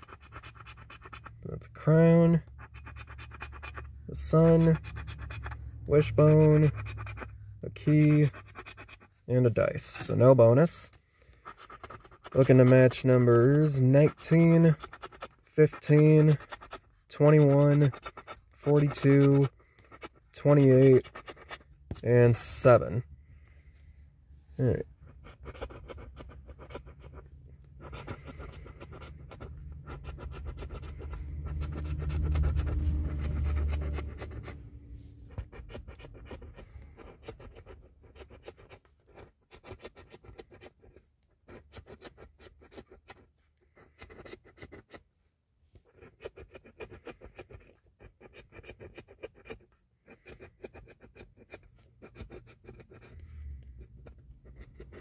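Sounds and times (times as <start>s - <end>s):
coin scratching ticket: 0.0s - 23.0s, 24.6s - 34.6s, 35.3s - 40.9s, 41.5s - 43.3s, 50.2s - 55.0s
low rumble: 30.8s - 35.5s.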